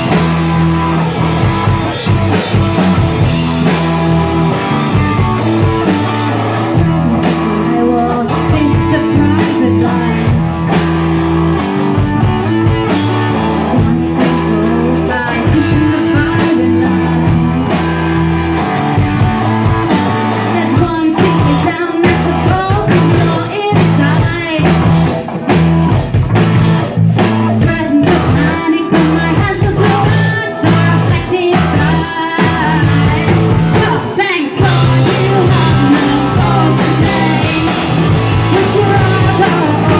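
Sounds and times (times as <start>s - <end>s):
drum kit: 0.0s - 39.9s
electric guitars: 0.0s - 39.9s
person singing: 4.5s - 10.8s, 13.1s - 18.0s, 20.2s - 25.0s, 27.4s - 39.9s.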